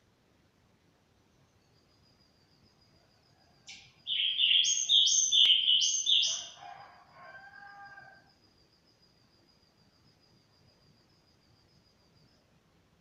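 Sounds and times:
songbird whistled notes: 0:03.7 - 0:06.5
low drawn-out bird call: 0:04.1 - 0:06.6.

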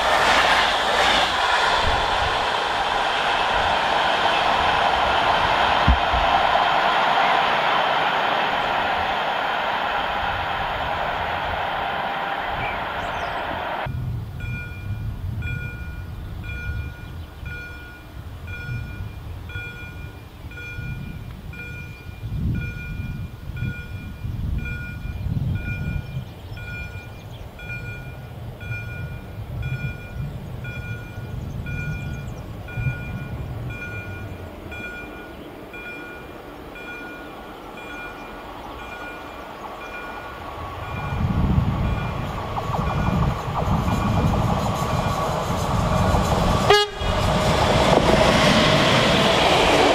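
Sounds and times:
gusty low rumble: 0:00.0 - 0:07.5, 0:40.4 - 0:49.9
electric locomotive hauling freight: 0:00.0 - 0:49.9.

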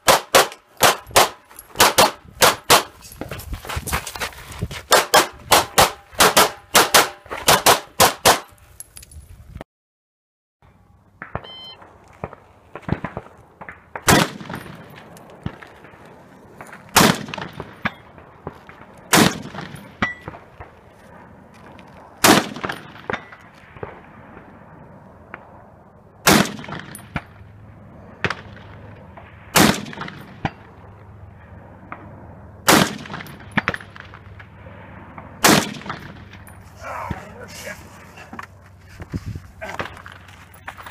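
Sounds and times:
rifle shots with echo: 0:00.0 - 0:02.9, 0:04.9 - 0:08.4, 0:11.2 - 0:16.0, 0:16.6 - 0:20.8, 0:22.2 - 0:24.6, 0:26.2 - 0:27.3, 0:28.2 - 0:30.8, 0:32.6 - 0:36.4.

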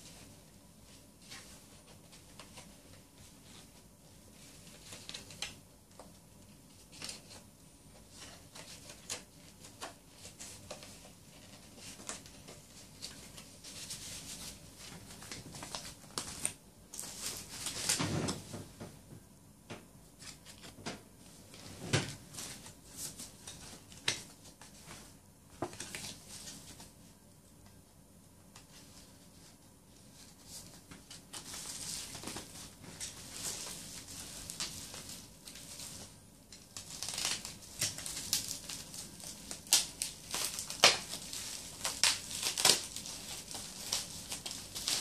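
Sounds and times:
plastic packaging crinkling: 0:30.6 - 0:45.0.

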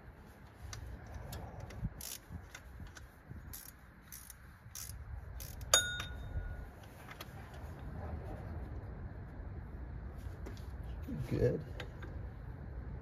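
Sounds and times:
wrench clinking on metal: 0:03.6 - 0:06.6.

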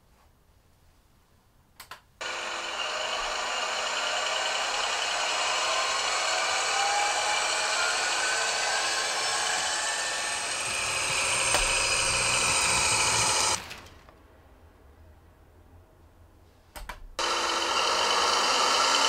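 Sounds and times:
model train motor whine: 0:02.2 - 0:14.0, 0:17.2 - 0:19.0
wheels rolling on track: 0:07.5 - 0:14.1.

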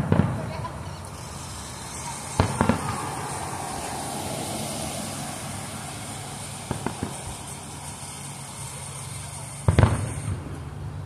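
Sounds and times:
quick firework pops: 0:00.0 - 0:00.6, 0:02.3 - 0:03.1, 0:06.6 - 0:07.4, 0:09.7 - 0:10.6
firework crackle: 0:00.0 - 0:11.0
firework boom: 0:02.4 - 0:03.2, 0:06.6 - 0:07.5.

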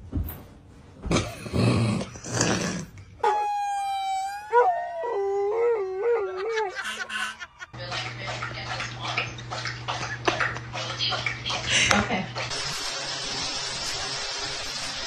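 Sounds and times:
fire truck siren: 0:03.2 - 0:05.5
dog howling: 0:03.2 - 0:07.7.

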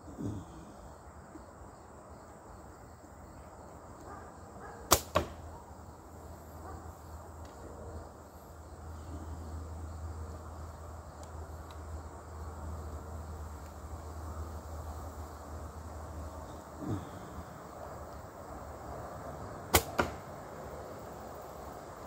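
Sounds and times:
arrow thudding into target: 0:04.9 - 0:05.4, 0:19.7 - 0:20.3
bow string snap: 0:04.9 - 0:05.4, 0:19.7 - 0:20.2.

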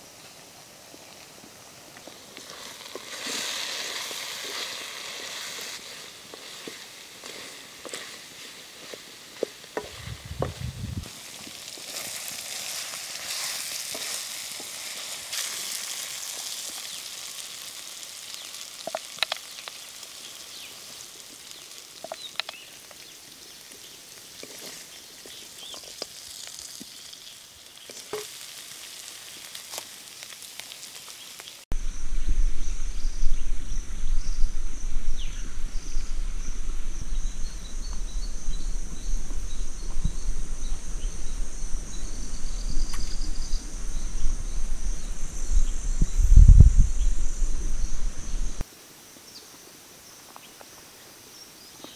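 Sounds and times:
insects chirring: 0:00.0 - 0:51.9
meat sizzling in a pan: 0:02.1 - 0:31.7
low rumble: 0:10.0 - 0:11.1, 0:31.7 - 0:48.6
spatula stirring and scraping: 0:11.6 - 0:17.0, 0:24.4 - 0:26.6.

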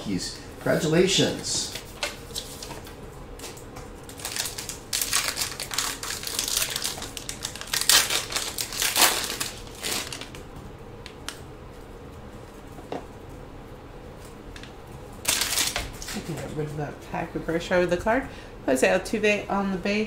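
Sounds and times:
card packaging crinkling: 0:04.0 - 0:10.4, 0:15.2 - 0:16.2.

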